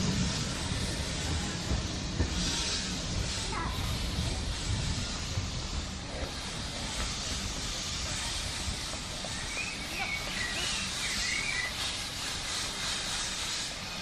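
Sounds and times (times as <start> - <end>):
outdoor rumble and hiss: 0.0 - 14.0.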